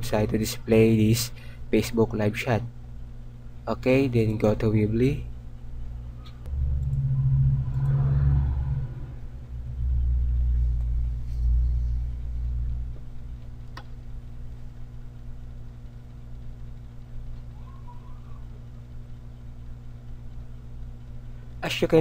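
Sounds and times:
low rumble: 0:06.0 - 0:14.5.

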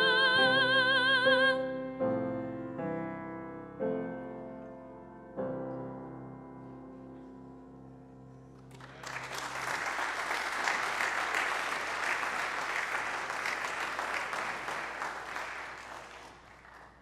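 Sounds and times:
congregation applauding: 0:08.6 - 0:17.0.

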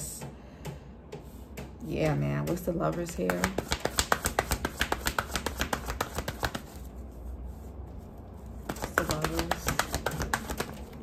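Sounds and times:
cards being shuffled by hand: 0:03.3 - 0:07.0, 0:08.0 - 0:11.0.

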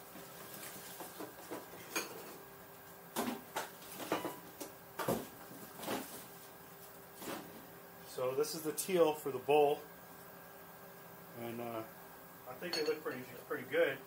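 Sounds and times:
packing paper rustling: 0:00.1 - 0:01.5.

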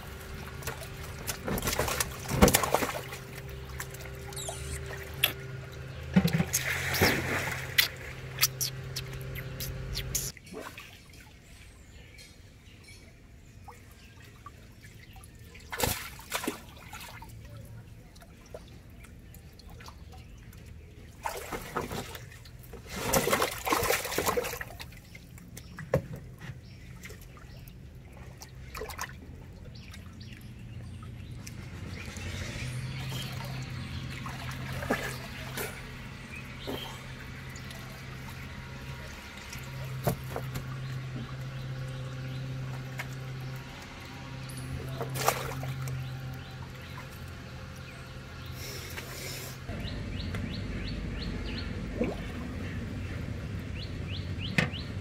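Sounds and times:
low steady hum: 0:00.0 - 0:55.0
water splashing and sloshing: 0:00.0 - 0:55.0.

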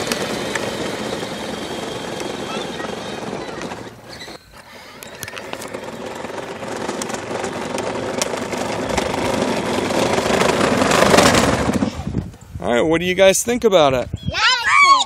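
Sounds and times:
electric motors whining: 0:00.0 - 0:11.9
wheels rumbling over asphalt: 0:00.0 - 0:12.5.

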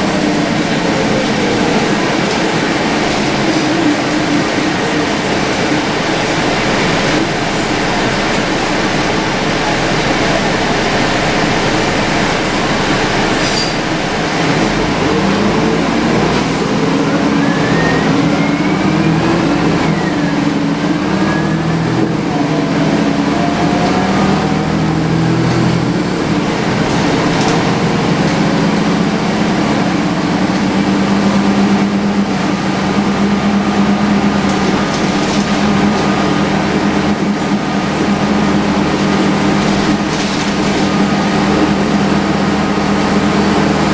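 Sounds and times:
bus diesel engine: 0:00.0 - 0:43.9
air-conditioning rushing: 0:20.6 - 0:43.9.

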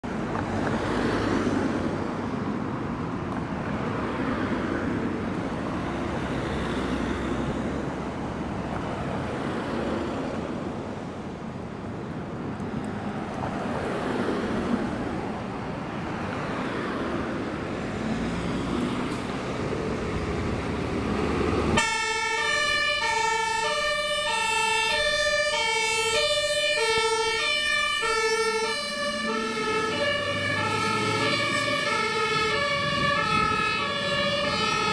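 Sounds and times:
road traffic passing: 0:00.0 - 0:34.9
two-tone fire engine siren: 0:21.7 - 0:34.9.

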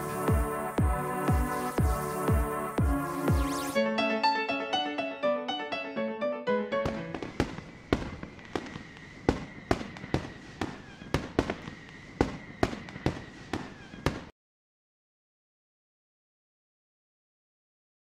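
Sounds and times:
electronic music: 0:00.0 - 0:07.1
sharp bangs: 0:06.8 - 0:14.3.

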